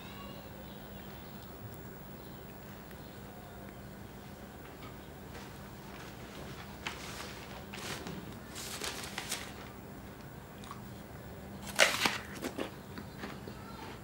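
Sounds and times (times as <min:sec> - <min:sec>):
rustling and handling noises: 0:04.2 - 0:10.3.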